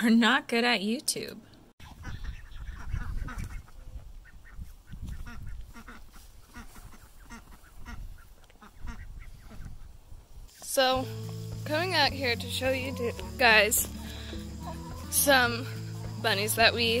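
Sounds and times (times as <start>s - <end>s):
ducks quacking: 1.8s - 9.9s, 13.0s - 17.0s.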